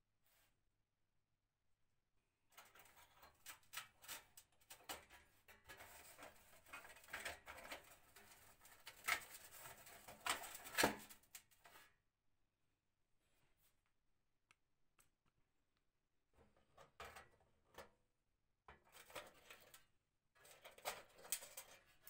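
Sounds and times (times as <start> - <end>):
small metallic clicks and scrapes: 2.5 - 11.8, 18.7 - 22.0.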